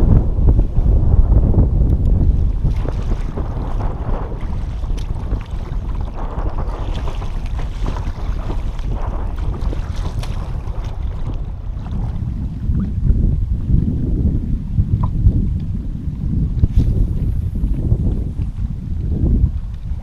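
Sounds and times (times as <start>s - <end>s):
wind buffeting microphone: 0.0s - 20.0s
kayak paddle dipping in water: 1.9s - 13.9s
water splashing: 2.1s - 13.1s.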